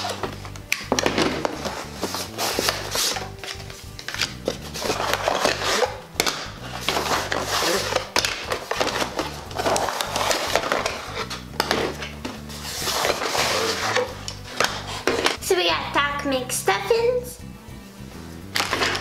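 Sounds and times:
plastic packaging rustling and clattering: 0:00.0 - 0:15.4, 0:18.6 - 0:19.0.

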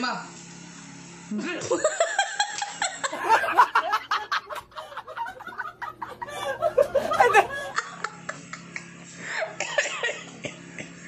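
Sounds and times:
man laughing hard: 0:01.7 - 0:08.6.

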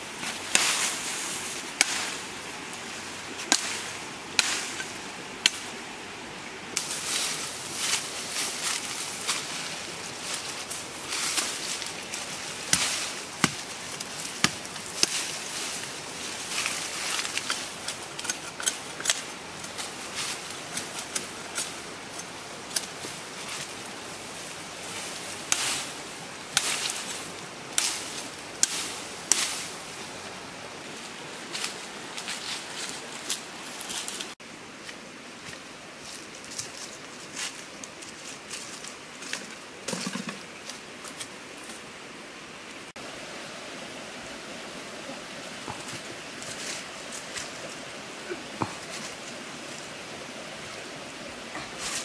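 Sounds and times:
steady background noise: 0:00.0 - 0:52.0
dry brush rustling and snapping: 0:00.2 - 0:05.8, 0:06.8 - 0:30.2.

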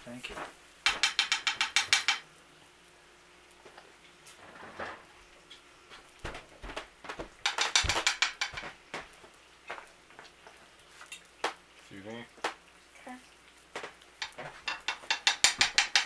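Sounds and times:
batter dropped onto griddle: 0:06.2 - 0:09.8.

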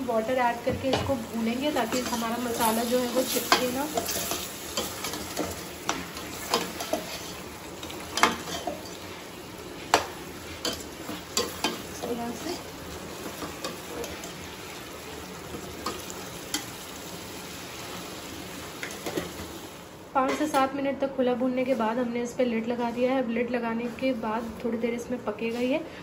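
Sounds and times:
curry sizzling in a pot: 0:00.0 - 0:20.6
metal spoon scraping a pot: 0:01.8 - 0:07.4.

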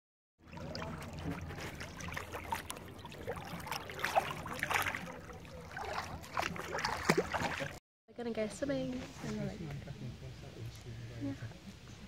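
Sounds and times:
water splashing and trickling: 0:00.4 - 0:07.8.

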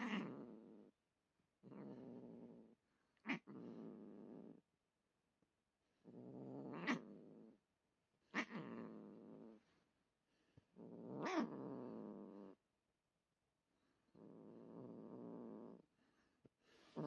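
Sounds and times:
cat growling: 0:00.0 - 0:00.9, 0:01.6 - 0:04.6, 0:06.0 - 0:07.6, 0:08.3 - 0:09.6, 0:10.8 - 0:12.6, 0:14.1 - 0:15.8.

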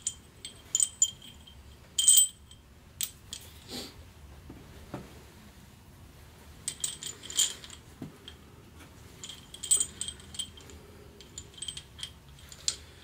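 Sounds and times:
metal bolts clinking: 0:00.0 - 0:03.5, 0:06.7 - 0:07.8, 0:09.2 - 0:13.0.

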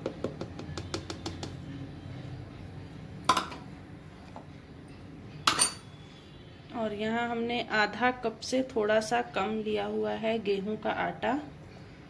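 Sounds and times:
bowl knocking on plastic jar: 0:00.0 - 0:01.6.

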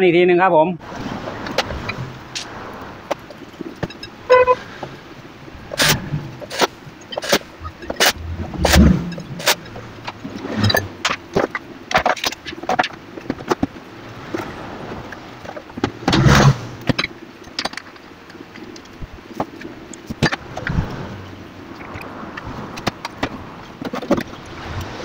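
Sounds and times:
plastic parts clicking and knocking: 0:05.7 - 0:13.8, 0:15.4 - 0:20.8, 0:22.8 - 0:24.4.

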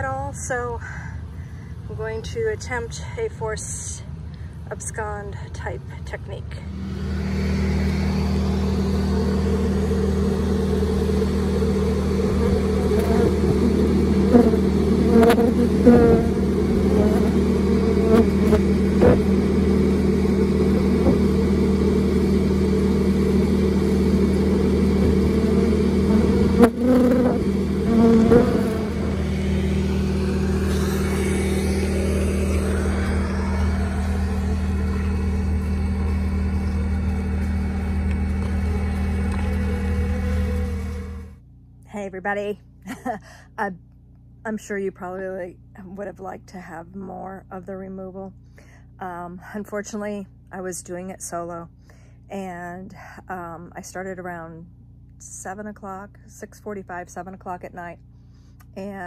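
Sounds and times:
bees buzzing: 0:06.7 - 0:41.4.

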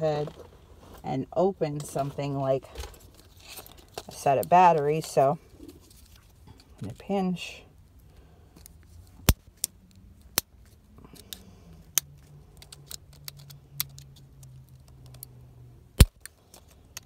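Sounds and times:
nail clippers snipping plastic: 0:16.0 - 0:17.0.

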